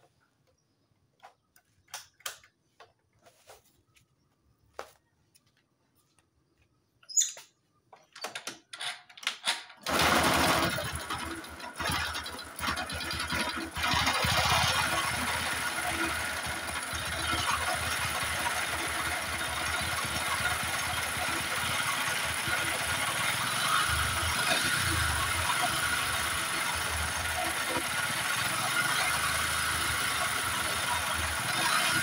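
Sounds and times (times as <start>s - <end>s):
motorcycle engine starting and running: 8.0s - 32.0s
harsh mechanical engine clatter: 9.8s - 32.0s.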